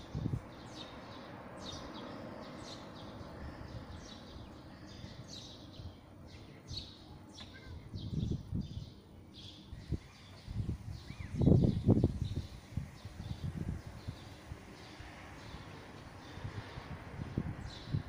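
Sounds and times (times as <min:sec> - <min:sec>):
wind buffeting microphone: 0:00.0 - 0:00.9, 0:07.8 - 0:09.0, 0:09.7 - 0:18.0
light wind: 0:00.0 - 0:18.0
songbirds chirping: 0:00.0 - 0:18.0.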